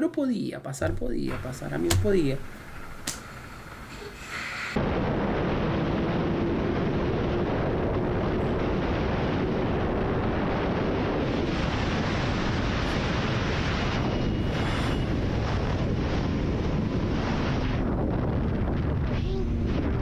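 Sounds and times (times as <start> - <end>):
wind buffeting microphone: 4.7 - 20.0.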